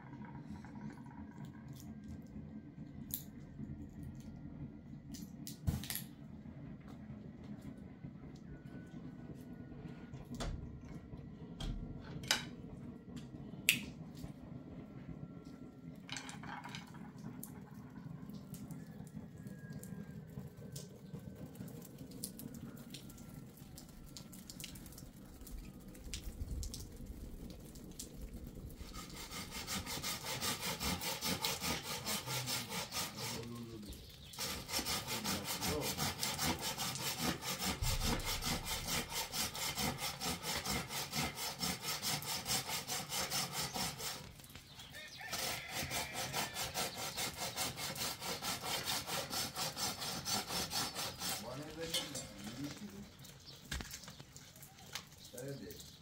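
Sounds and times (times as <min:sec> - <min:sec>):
hand saw cutting branch: 0:28.8 - 0:52.8.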